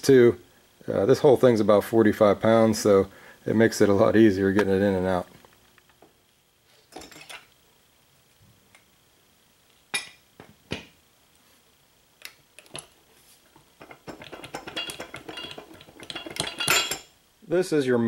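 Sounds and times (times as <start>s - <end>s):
light metallic clinking: 13.8s - 17.1s
metal parts knocking: 13.8s - 17.1s.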